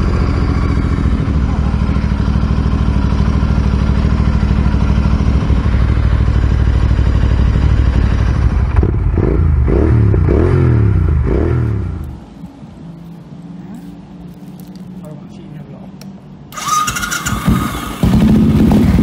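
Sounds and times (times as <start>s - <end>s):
motorcycle engine idling: 0.0s - 12.2s, 16.5s - 19.0s.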